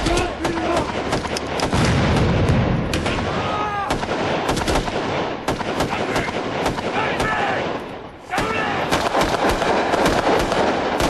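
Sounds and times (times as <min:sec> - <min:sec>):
rifle and machine-gun shots: 0:00.0 - 0:11.0
explosion rumble: 0:01.6 - 0:03.6.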